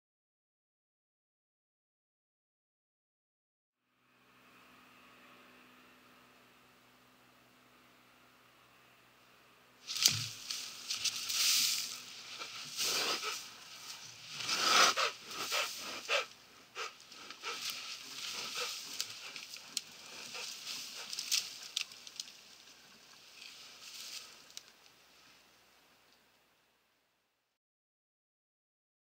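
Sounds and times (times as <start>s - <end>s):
branches rustling and snapping: 9.8s - 25.0s
animal rushing breaths: 9.9s - 21.8s.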